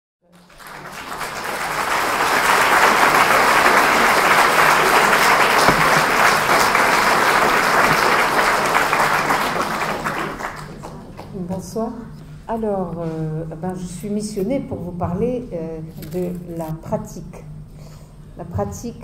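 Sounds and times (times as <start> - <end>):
audience applauding: 0.3 - 11.4.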